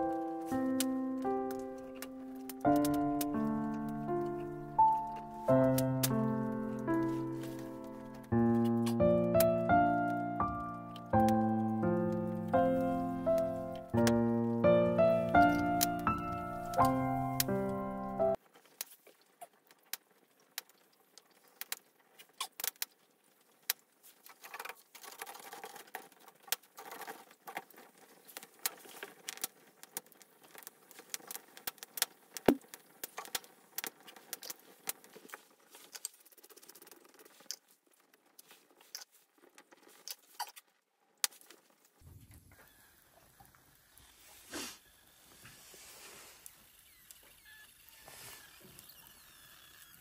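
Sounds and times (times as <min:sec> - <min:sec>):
wood fire crackling and popping: 0:00.0 - 0:42.1
faint hiss: 0:42.1 - 0:47.0.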